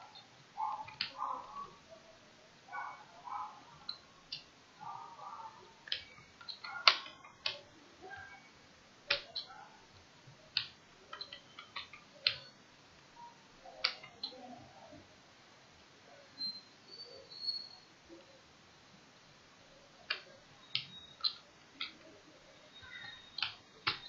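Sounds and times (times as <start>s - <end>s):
keys clicking on computer keyboard: 0.8s - 1.2s, 5.8s - 7.7s, 9.1s - 9.5s, 10.5s - 12.5s, 22.9s - 24.0s.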